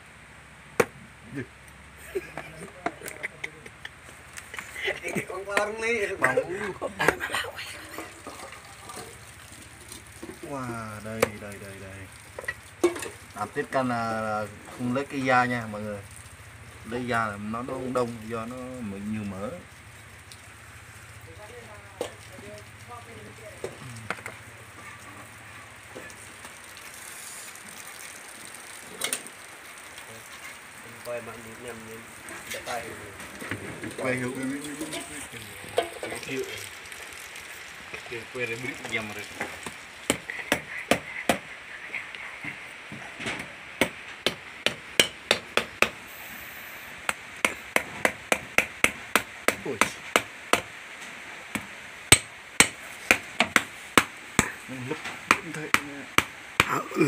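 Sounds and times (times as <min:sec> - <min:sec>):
steady hiss: 0:00.0 - 0:57.0
knocks on wooden chopping board: 0:00.8 - 0:01.0
knife chopping on wooden block: 0:40.1 - 0:41.5.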